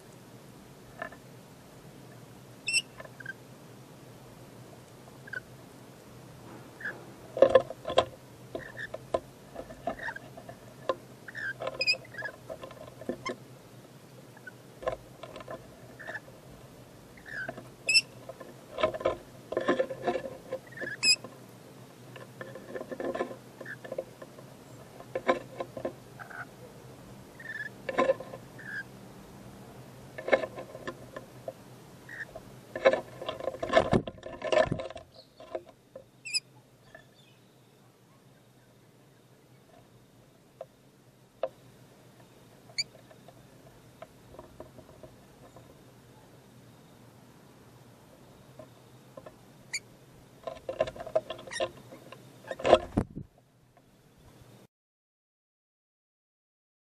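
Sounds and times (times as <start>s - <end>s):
high thin squeaks: 2.6s - 3.4s, 9.7s - 10.4s, 11.3s - 12.5s, 17.2s - 18.2s, 19.9s - 21.3s
soft bird chirps: 2.6s - 3.4s, 5.2s - 5.5s, 26.2s - 27.8s, 35.1s - 35.6s, 36.2s - 39.8s.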